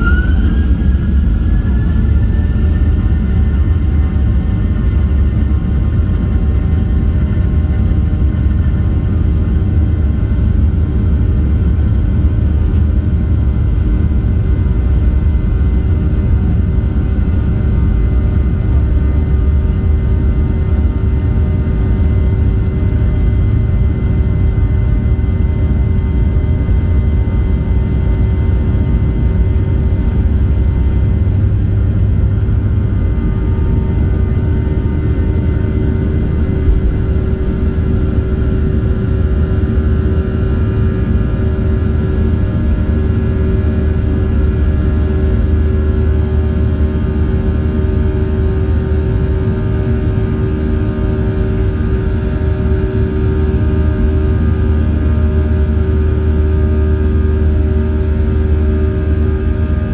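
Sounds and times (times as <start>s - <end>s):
deep rumble of wheels: 0.0s - 9.4s, 10.0s - 45.0s
jet engines steady tone: 0.0s - 59.9s.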